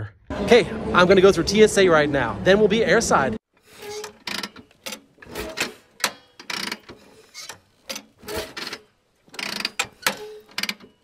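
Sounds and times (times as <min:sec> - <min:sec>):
gears clicking and clanking: 0:03.6 - 0:11.0.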